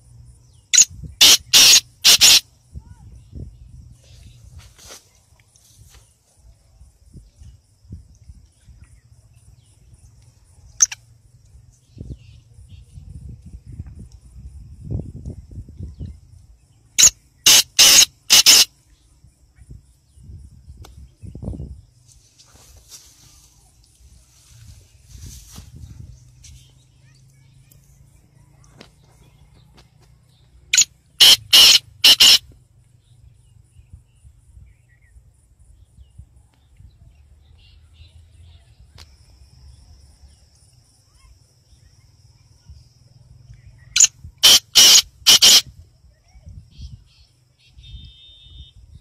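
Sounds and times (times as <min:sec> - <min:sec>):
bird harsh hissy calls: 0:00.8 - 0:02.5, 0:17.0 - 0:18.7, 0:30.8 - 0:32.4, 0:44.0 - 0:45.6.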